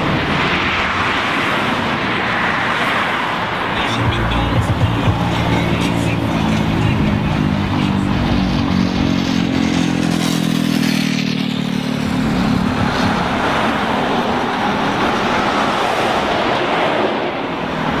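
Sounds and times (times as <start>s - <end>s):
road noise of moving car: 0.0s - 18.0s
car engine humming: 3.4s - 10.1s.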